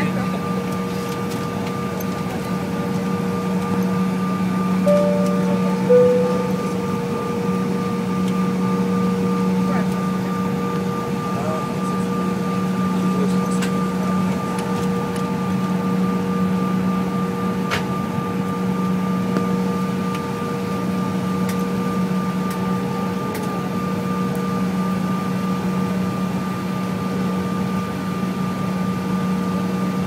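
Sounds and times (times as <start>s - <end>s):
jet engine whine in cabin: 0.0s - 30.0s.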